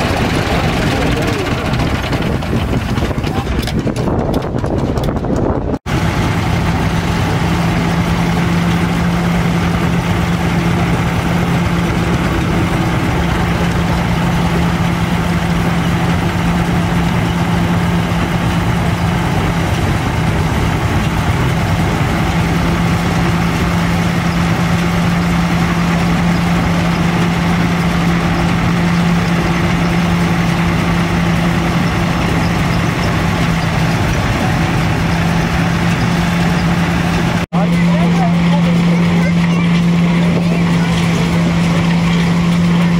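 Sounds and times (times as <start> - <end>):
threshing machine rattling: 0.0 - 42.9
tractor engine running: 0.0 - 42.9.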